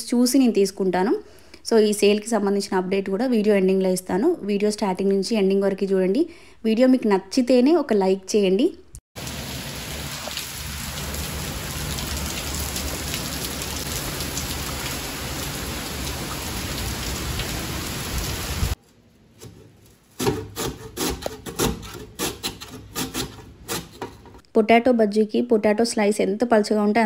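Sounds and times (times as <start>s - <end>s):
heavy rain: 9.2s - 18.8s.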